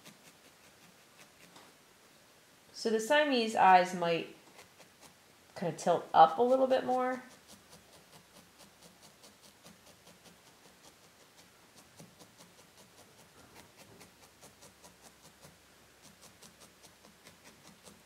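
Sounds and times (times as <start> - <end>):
felting needle stabbing wool: 4.4 - 18.0.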